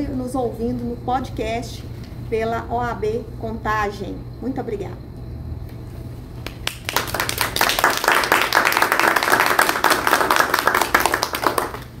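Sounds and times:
roomful of people applauding: 0:06.4 - 0:12.0.

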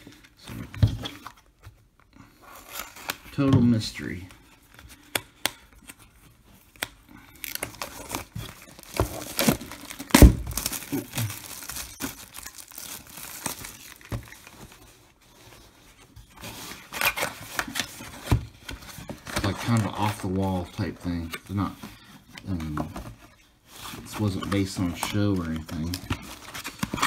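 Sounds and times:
plastic shrink-wrap crinkling: 0:07.4 - 0:15.7
cardboard box handled: 0:07.5 - 0:19.8.

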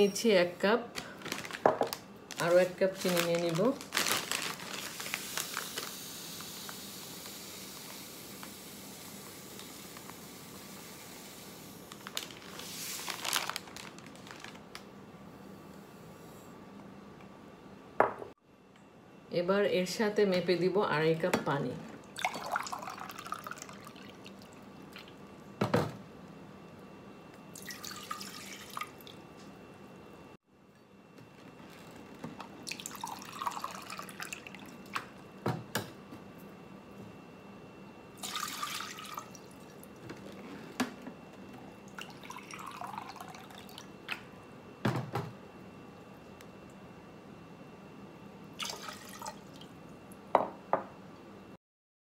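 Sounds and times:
plastic packet rustling: 0:01.0 - 0:06.0, 0:11.9 - 0:14.8
water pouring into saucepan: 0:22.2 - 0:24.4, 0:27.6 - 0:29.0, 0:32.7 - 0:34.6, 0:38.2 - 0:39.4, 0:42.0 - 0:43.8, 0:48.6 - 0:49.6
sugar pouring into glass: 0:32.7 - 0:34.4, 0:42.2 - 0:43.6.

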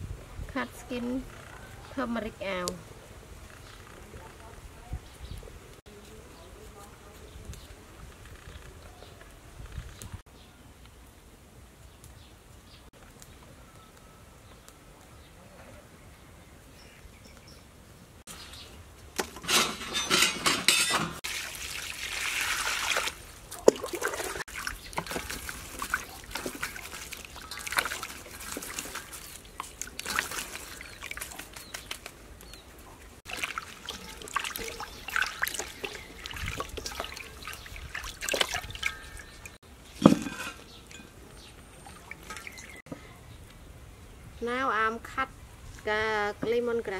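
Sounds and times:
water splashing in a steel bowl: 0:21.2 - 0:32.0, 0:33.2 - 0:39.6, 0:41.8 - 0:42.8.

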